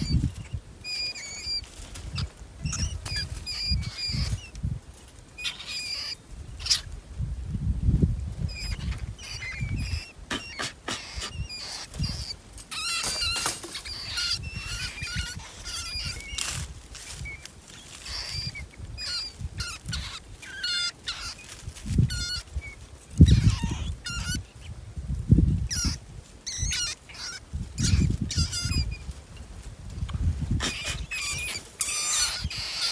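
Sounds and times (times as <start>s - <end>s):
rats squealing: 0.0s - 4.6s, 5.4s - 7.0s, 8.5s - 24.7s, 25.7s - 29.1s, 30.5s - 32.9s
wire cage traps rattling: 12.5s - 14.0s.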